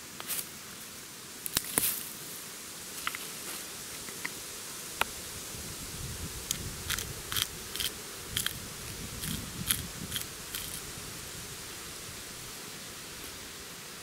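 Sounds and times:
spice mill crunching clicks: 6.5s - 8.6s, 9.2s - 10.8s.

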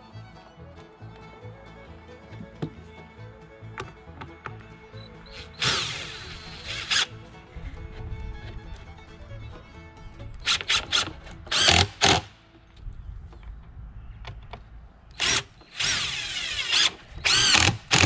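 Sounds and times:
cordless drill motor whining: 5.2s - 7.1s, 10.5s - 12.3s, 15.2s - 18.0s.

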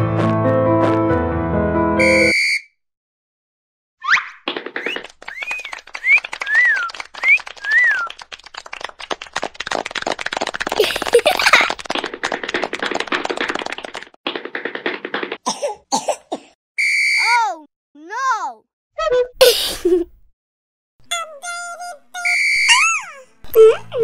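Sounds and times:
rapid cartoon clicks: 4.4s - 15.5s
chirpy whistle-like glides: 5.3s - 8.2s.

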